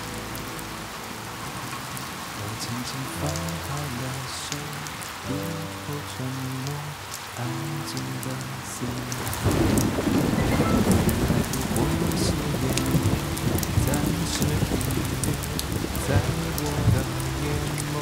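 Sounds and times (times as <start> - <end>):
rain falling: 0.0 - 18.0
soft background music: 0.0 - 18.0
low rumble of thunder: 8.9 - 18.0.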